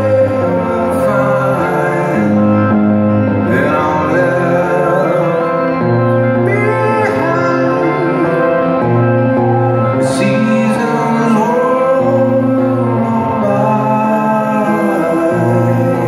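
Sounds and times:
held guitar chords: 0.0s - 16.0s
live rock band playing: 0.0s - 16.0s
person singing: 0.0s - 16.0s.

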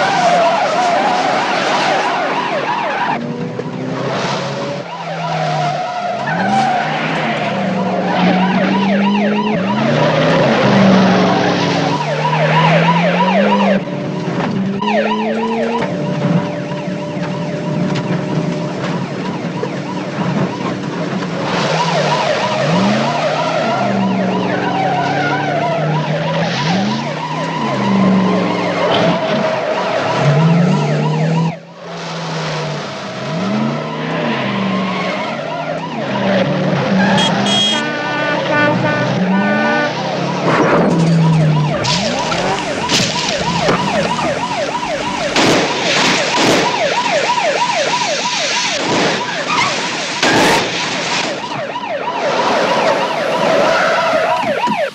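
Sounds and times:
car engines revving: 0.0s - 54.9s
police siren wailing: 0.0s - 54.9s
cars crashing bangs: 38.7s - 54.9s.

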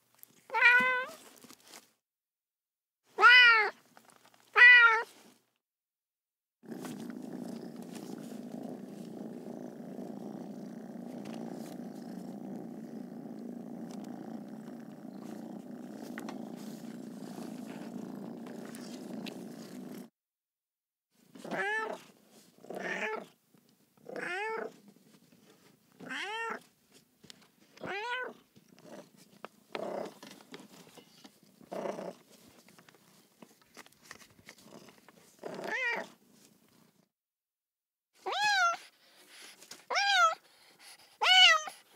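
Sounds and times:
cat meowing: 0.5s - 1.2s, 3.2s - 3.8s, 4.5s - 5.1s, 21.5s - 22.0s, 38.2s - 38.8s, 39.9s - 40.4s, 41.2s - 41.8s
cat purring: 6.6s - 20.1s, 28.6s - 33.2s.

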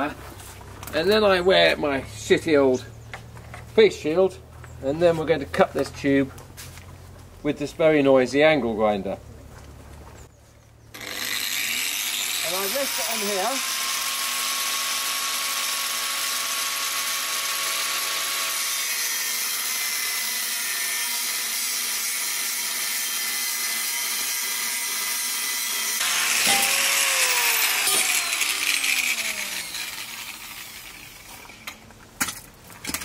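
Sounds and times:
angle grinder cutting metal: 10.9s - 31.8s
grinder disc spinning down: 11.0s - 19.7s, 23.6s - 31.7s.

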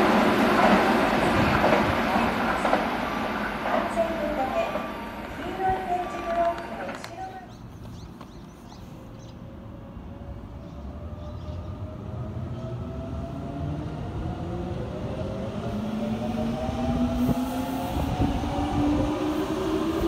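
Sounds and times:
wheels rumbling on rail: 0.0s - 8.4s.

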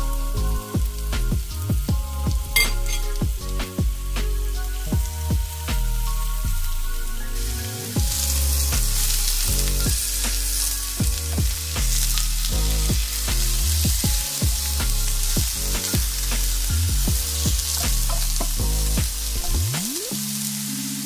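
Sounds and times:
chicken sizzling in a pan: 0.0s - 21.0s
spatula stirring: 8.0s - 19.6s.

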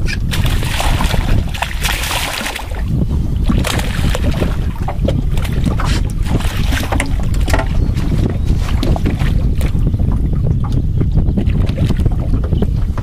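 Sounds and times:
fish thrashing and splashing: 0.0s - 10.2s
wind rumble on microphone: 0.0s - 13.0s.

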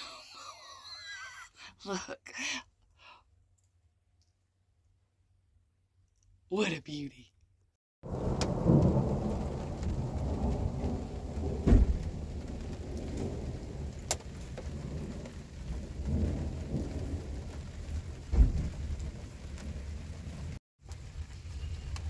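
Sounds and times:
steady rain falling: 8.0s - 22.0s
thunder rumbling: 8.0s - 22.0s.

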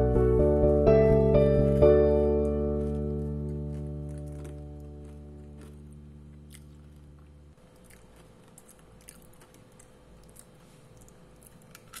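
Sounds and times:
background music chord: 0.0s - 6.4s
crunching and chewing: 2.4s - 12.0s.

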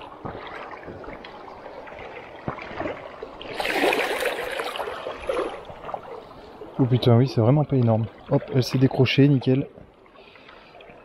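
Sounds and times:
flowing water: 0.0s - 11.0s
fish splashing at water surface: 2.4s - 5.6s.

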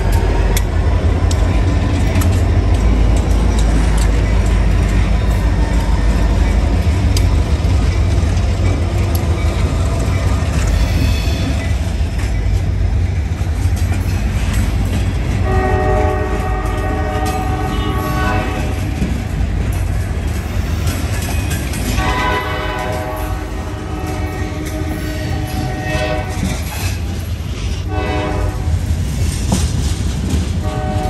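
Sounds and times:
freight train rumbling and clacking: 0.0s - 31.0s
locomotive air horn: 15.4s - 19.0s, 21.9s - 26.7s, 27.9s - 28.8s, 30.6s - 31.0s.

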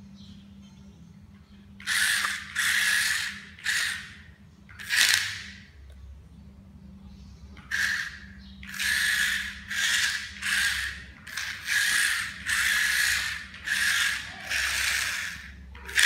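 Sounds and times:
toy car motors whirring: 1.8s - 5.7s, 7.6s - 16.0s.

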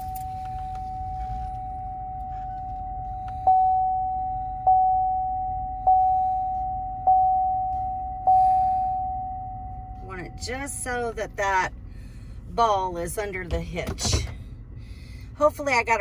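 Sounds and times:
repeating warning chime: 0.0s - 10.7s
park-assist warning tone: 0.0s - 11.7s.

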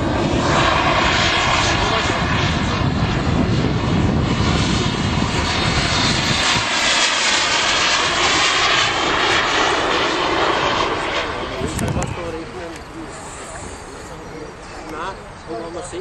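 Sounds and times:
wind rumble on microphone: 0.0s - 12.4s
model jet engine rushing: 0.0s - 16.0s.

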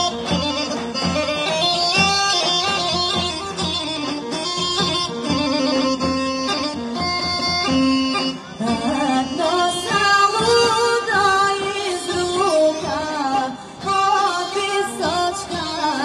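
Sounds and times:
bagpipes playing: 0.0s - 16.0s
drum beating: 0.0s - 16.0s
woman singing: 8.6s - 16.0s.

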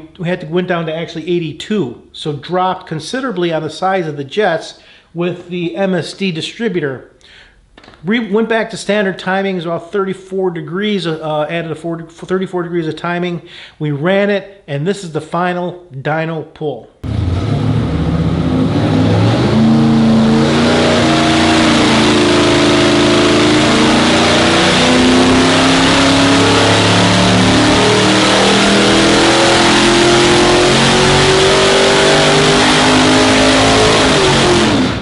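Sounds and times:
engine revving at full throttle: 17.0s - 35.0s.

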